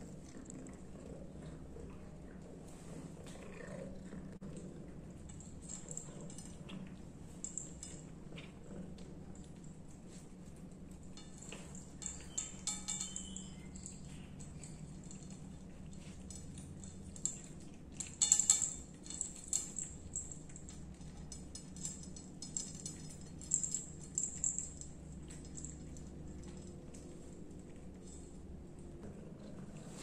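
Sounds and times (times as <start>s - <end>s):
cat collar bell jingling: 10.8s - 28.4s.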